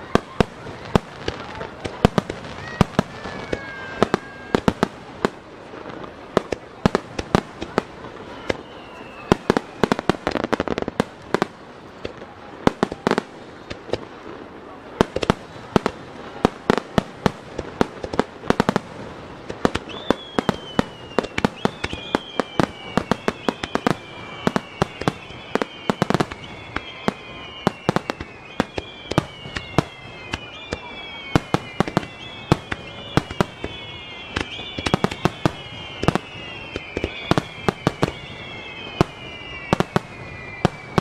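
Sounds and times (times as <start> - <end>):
falling firework whistles: 0.0 - 14.1, 15.0 - 41.0
firework bangs and crackles: 0.0 - 41.0.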